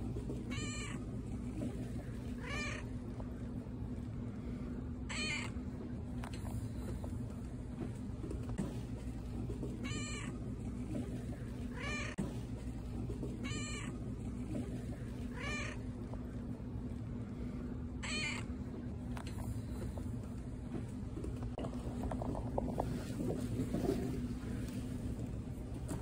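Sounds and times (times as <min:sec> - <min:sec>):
steady low hum: 0:00.0 - 0:26.0
cat meowing: 0:00.5 - 0:01.0, 0:02.4 - 0:02.9, 0:05.1 - 0:05.6, 0:09.8 - 0:10.4, 0:11.7 - 0:12.2, 0:13.4 - 0:14.0, 0:15.3 - 0:15.8, 0:18.0 - 0:18.5.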